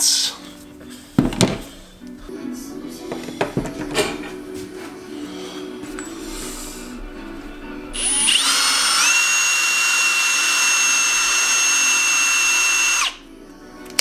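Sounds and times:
drill with wire brush whining: 8.0s - 13.2s.

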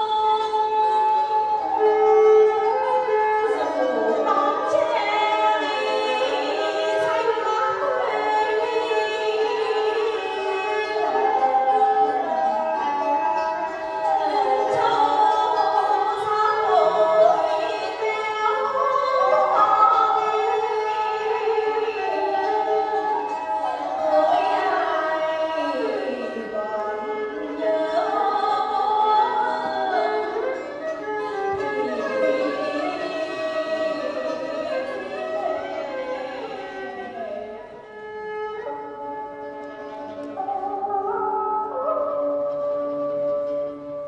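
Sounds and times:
traditional instrumental ensemble: 0.0s - 44.0s
woman singing folk song: 3.6s - 11.7s, 14.1s - 30.6s.

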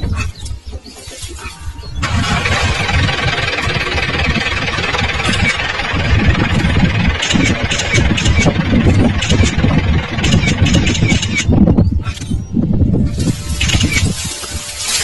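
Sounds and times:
vehicle engine idling: 2.0s - 11.4s.

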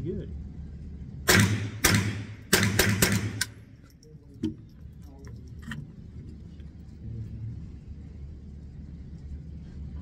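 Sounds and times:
rifle shots: 1.3s - 3.6s.

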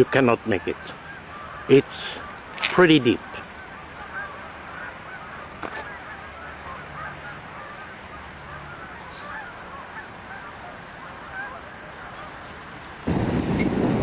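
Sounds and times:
geese honking: 0.0s - 13.1s
steady rushing background: 0.0s - 14.0s.

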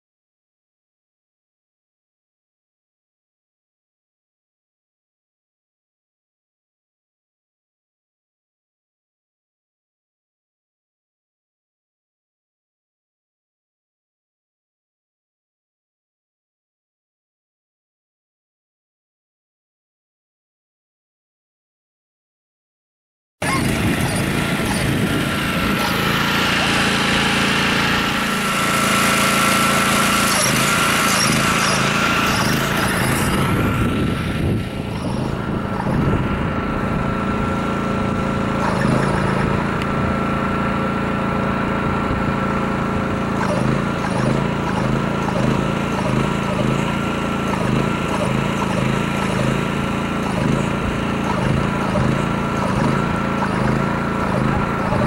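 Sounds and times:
motor whining: 23.4s - 55.0s.

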